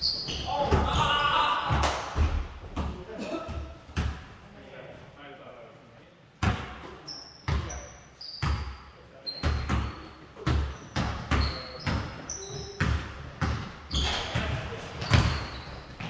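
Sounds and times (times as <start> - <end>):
sneaker squeaks: 0.0 - 1.3, 6.8 - 16.0
basketballs bouncing on hardwood: 0.2 - 4.3, 9.4 - 16.0.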